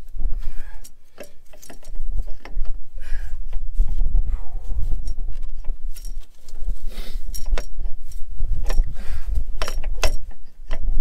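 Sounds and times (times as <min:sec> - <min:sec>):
wind rumble on microphone: 0:00.0 - 0:01.1, 0:01.8 - 0:11.0
metal tools clinking: 0:00.8 - 0:02.5, 0:05.9 - 0:06.6, 0:07.3 - 0:08.9, 0:09.6 - 0:10.6.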